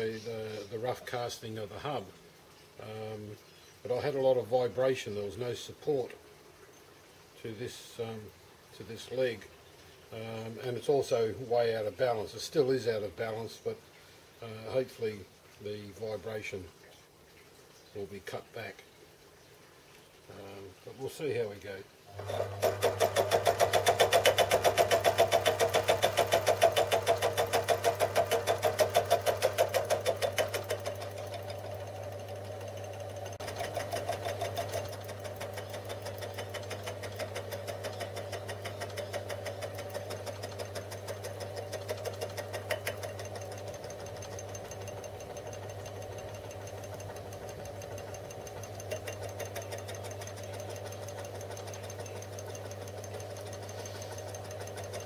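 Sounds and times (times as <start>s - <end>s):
lathe pulsing vibration: 22.1s - 55.0s
motor hum: 22.1s - 55.0s.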